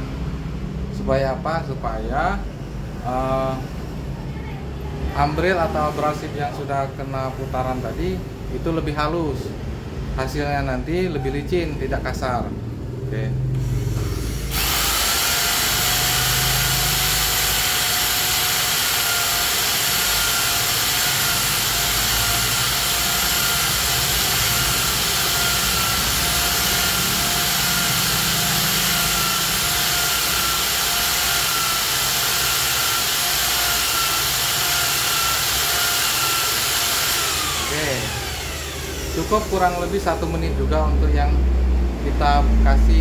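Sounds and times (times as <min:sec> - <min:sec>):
electric drill lapping valve: 0:13.6 - 0:40.4.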